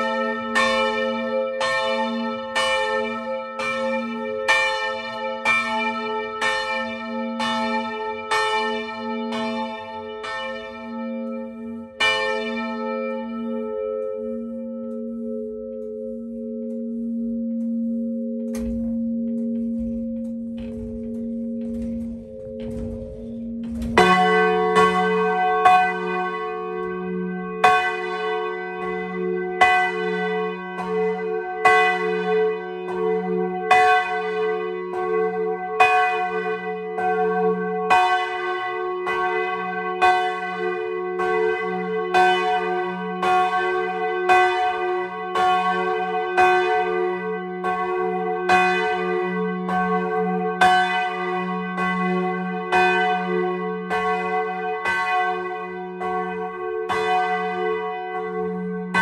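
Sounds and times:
church bells ringing: 0.0 - 59.0
low hum from bells: 6.4 - 27.8.

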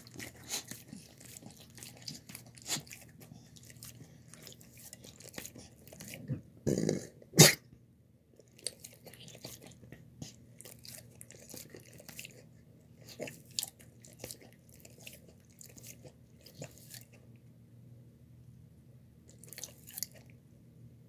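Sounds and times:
dog eating wet food: 0.0 - 6.6, 8.4 - 17.3, 19.3 - 20.4.

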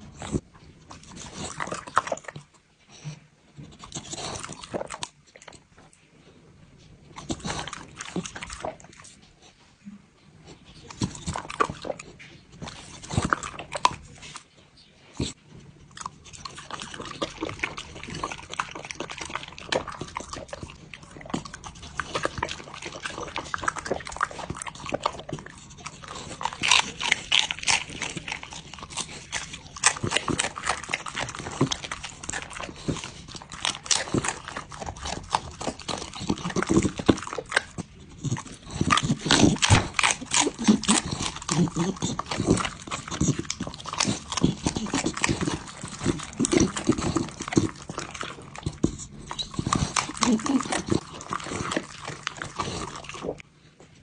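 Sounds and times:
dog crunching cabbage: 0.0 - 9.7, 10.4 - 54.0.

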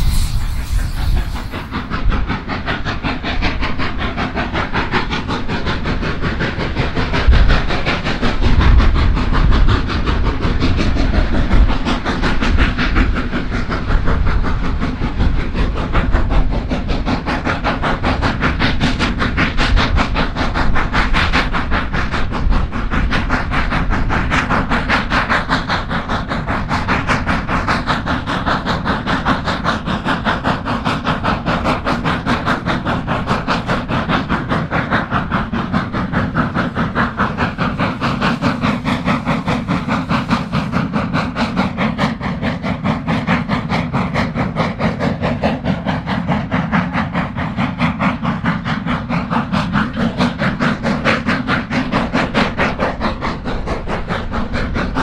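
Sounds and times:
low rumble: 0.0 - 2.8
steam hiss: 0.0 - 55.0
steam locomotive exhaust beats: 0.0 - 55.0.

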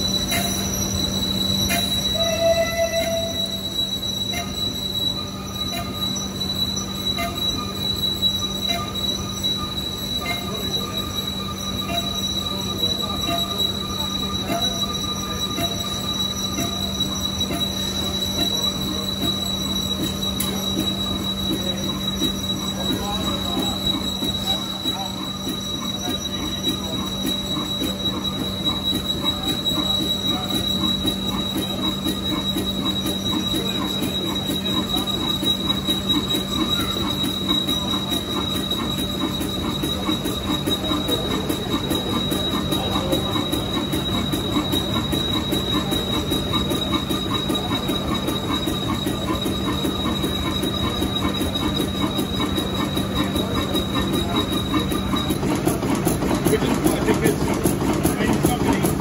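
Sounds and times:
high-pitched whine: 0.0 - 59.0
large engine running: 26.8 - 59.0.

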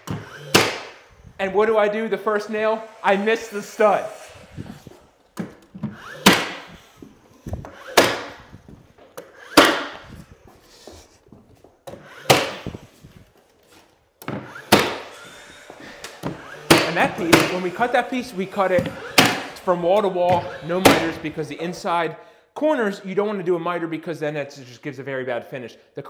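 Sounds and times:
nail gun firing: 0.0 - 1.1, 5.4 - 8.6, 9.2 - 10.2, 11.9 - 12.8, 14.2 - 15.2, 16.1 - 17.7, 18.7 - 19.6, 20.3 - 21.3.

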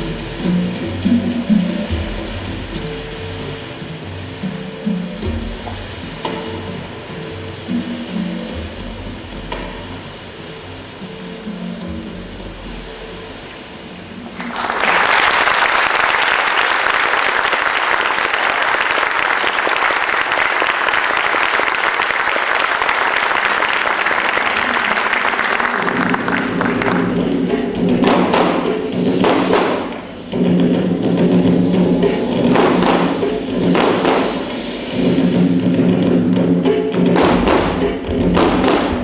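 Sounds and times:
soft music: 0.0 - 14.8, 24.2 - 39.0
music with drum strokes: 0.0 - 14.9, 22.0 - 39.0
audience applauding: 14.2 - 28.6.

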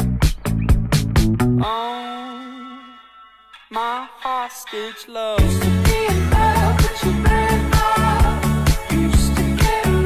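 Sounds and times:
pop music with dance beat: 3.7 - 10.0.

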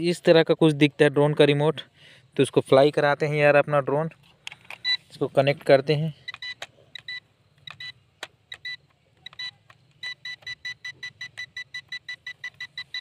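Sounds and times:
controller clicks: 6.2 - 13.0
remote controller beeping: 6.2 - 13.0.

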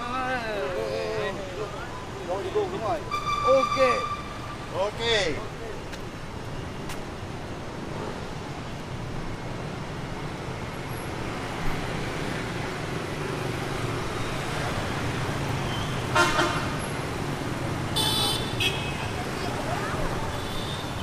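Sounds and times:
vehicle horn honking: 3.0 - 4.6, 16.1 - 16.8, 18.0 - 19.2.

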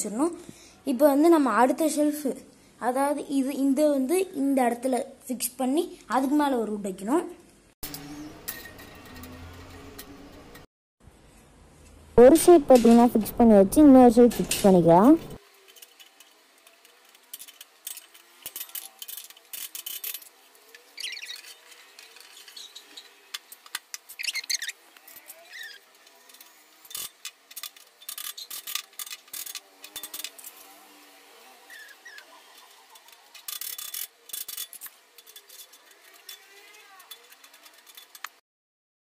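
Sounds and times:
squeaky metal scrapes: 17.4 - 23.3, 24.1 - 27.2, 27.9 - 38.3.

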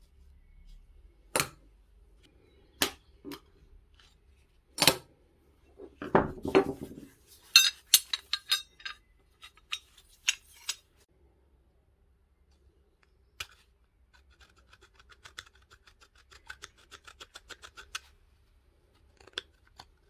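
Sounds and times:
metal parts rattling: 6.4 - 10.9
small metal parts clinking: 7.4 - 11.0.

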